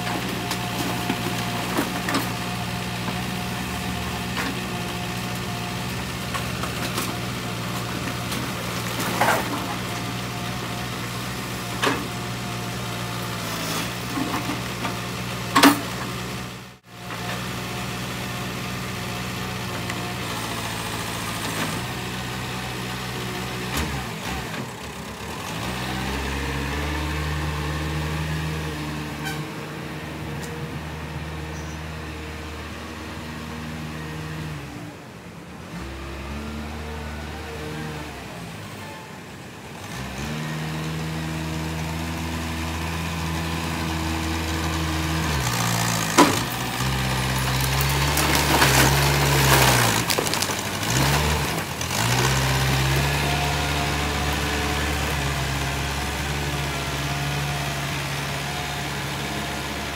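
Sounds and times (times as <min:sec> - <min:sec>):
diesel engine running: 0:00.0 - 0:35.2, 0:38.1 - 0:59.9
metallic clanks of scrap metal: 0:07.8 - 0:09.8, 0:15.5 - 0:16.1.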